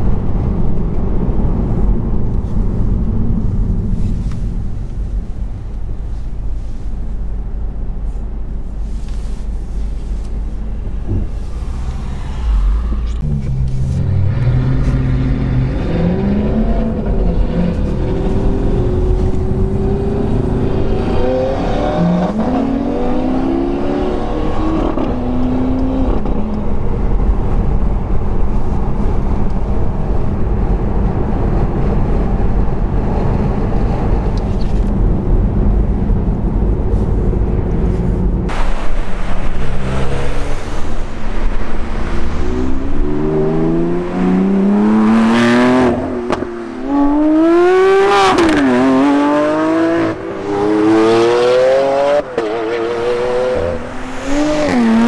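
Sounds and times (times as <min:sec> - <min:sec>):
road noise: 0:00.0 - 0:55.0
sports car engines revving: 0:10.7 - 0:27.3, 0:38.4 - 0:55.0.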